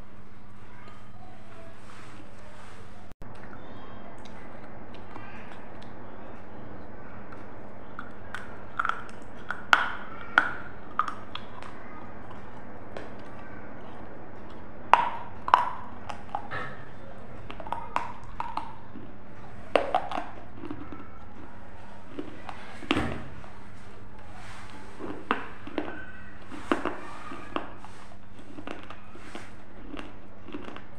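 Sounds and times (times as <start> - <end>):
crunching crisp cracker: 7.2 - 30.9.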